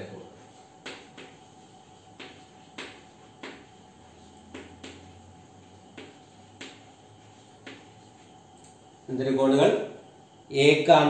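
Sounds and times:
faint hum: 0:00.0 - 0:11.0
chalk strokes on a blackboard: 0:00.1 - 0:08.4.

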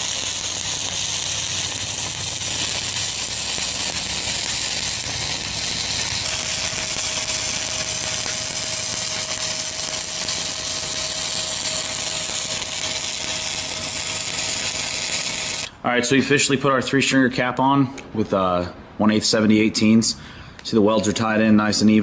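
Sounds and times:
welding arc crackling: 0:00.0 - 0:15.7.

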